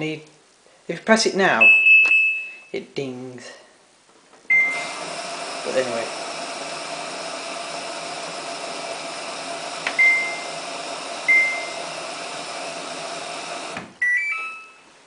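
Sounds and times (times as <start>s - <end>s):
button beeps: 1.6s - 2.7s, 14.0s - 14.8s
washing machine hum: 4.5s - 14.0s.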